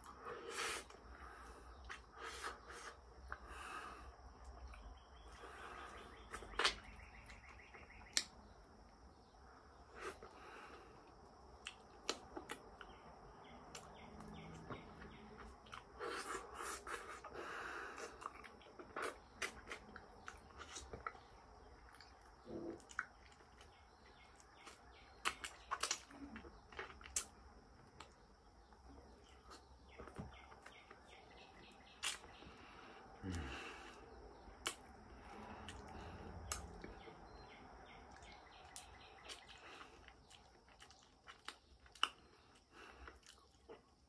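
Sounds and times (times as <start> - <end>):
sniffing breaths: 0.0 - 4.4, 15.9 - 18.4, 32.3 - 37.1.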